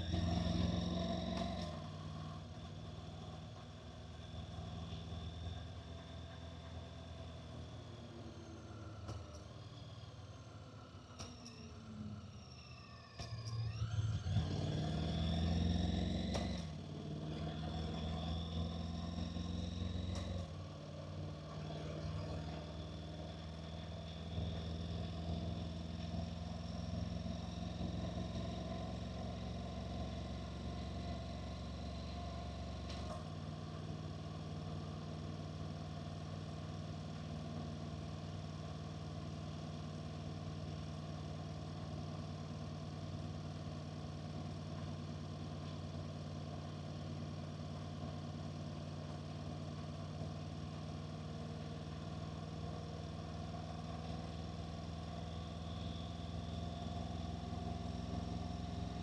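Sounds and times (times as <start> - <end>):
motorcycle engine accelerating: 0.0 - 7.5, 13.2 - 37.3, 49.0 - 59.0.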